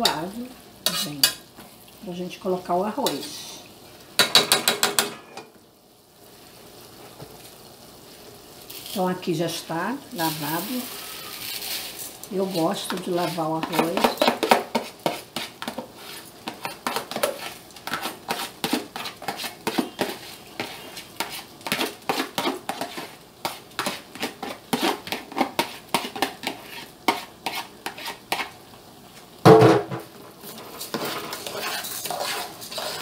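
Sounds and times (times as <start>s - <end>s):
spoon knocking against pot: 4.2s - 5.5s
metal spoon scraping plastic container: 30.8s - 33.0s.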